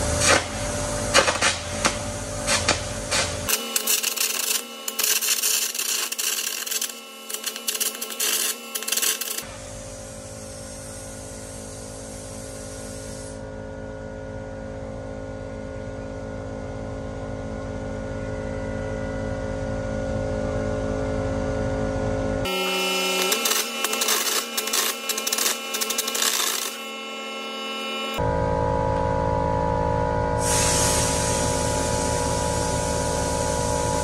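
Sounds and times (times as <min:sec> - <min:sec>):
mechanical hum with low buzz: 0:00.0 - 0:34.0
harsh crackling arc: 0:02.4 - 0:09.5, 0:22.5 - 0:28.2.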